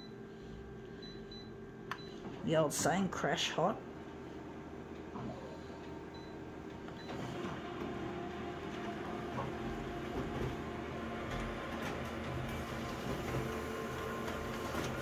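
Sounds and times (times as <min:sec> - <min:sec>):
copier motors and rollers running: 0:00.0 - 0:15.0
copier beep: 0:06.1 - 0:07.3.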